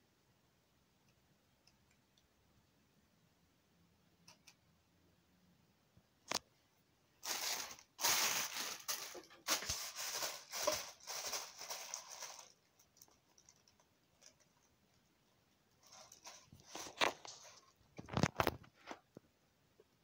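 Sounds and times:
plastic bag crinkling: 0:07.2 - 0:14.7, 0:15.8 - 0:18.6.

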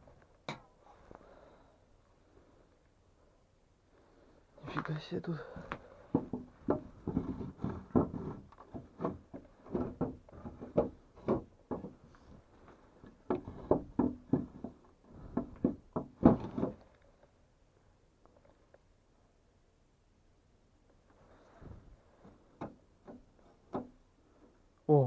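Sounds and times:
wooden boards knocking and thudding: 0:05.6 - 0:12.1, 0:13.0 - 0:16.9, 0:22.6 - 0:24.0.

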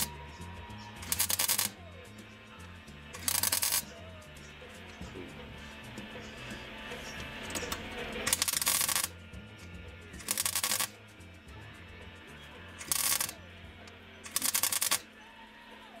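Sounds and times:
background music: 0:00.0 - 0:16.0
welding arc crackling: 0:01.0 - 0:01.7, 0:03.2 - 0:03.8, 0:08.2 - 0:09.1, 0:10.2 - 0:10.9, 0:12.8 - 0:13.4, 0:14.3 - 0:15.0.

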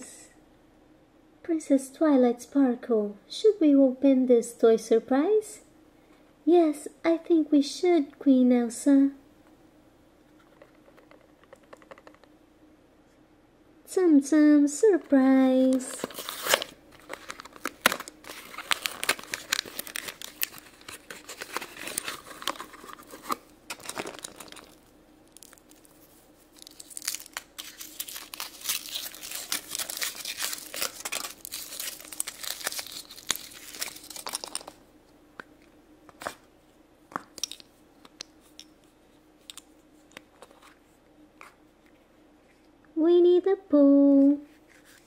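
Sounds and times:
foil wrapper crinkling: 0:15.7 - 0:34.8.

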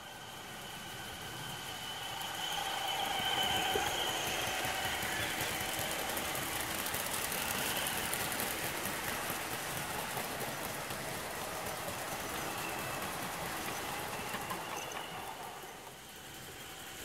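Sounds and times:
model train wheels clattering on rails: 0:00.6 - 0:17.0.

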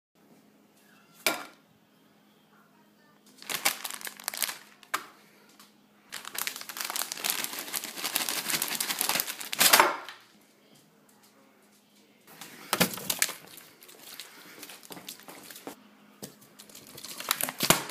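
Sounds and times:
plastic bag crinkling: 0:03.3 - 0:05.0, 0:06.1 - 0:10.2, 0:12.3 - 0:15.8, 0:16.6 - 0:17.9.

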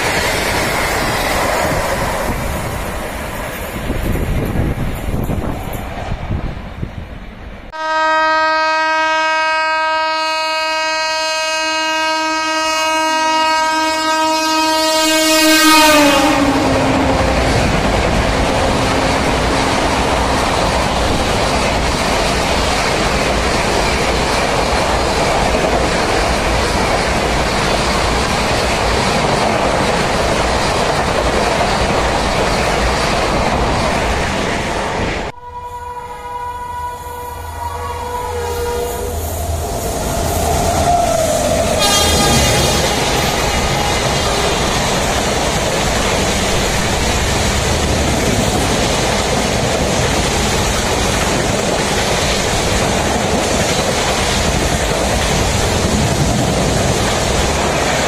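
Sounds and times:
train coaches rushing and rattling: 0:00.0 - 0:07.7, 0:12.5 - 0:35.3, 0:37.4 - 0:58.0
locomotive horn: 0:07.7 - 0:17.7, 0:35.4 - 0:44.7.

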